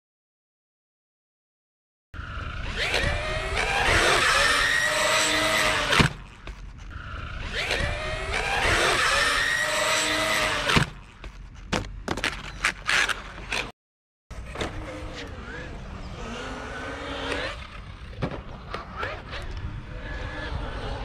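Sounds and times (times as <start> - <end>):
electric motor whining: 2.2 - 11.0.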